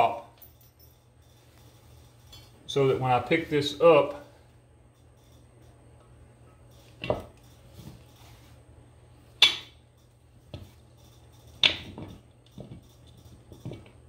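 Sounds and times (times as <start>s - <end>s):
metal clinks on wheel rim: 9.4s - 14.0s.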